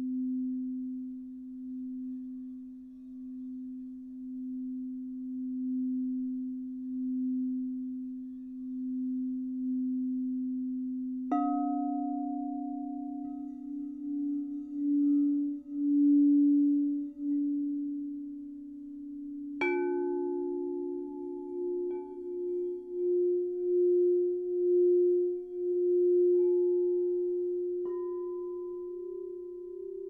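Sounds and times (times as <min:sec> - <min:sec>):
bowl struck: 0:00.0 - 0:30.0
singing bowls ringing: 0:08.6 - 0:30.0.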